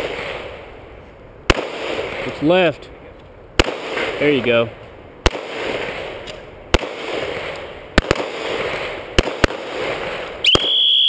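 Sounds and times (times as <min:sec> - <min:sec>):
rolling echo of gunshots: 0:00.0 - 0:00.6, 0:01.5 - 0:02.7, 0:03.6 - 0:04.6, 0:05.2 - 0:10.8
pistol shots: 0:01.5 - 0:02.3, 0:03.6 - 0:04.4, 0:05.2 - 0:10.8.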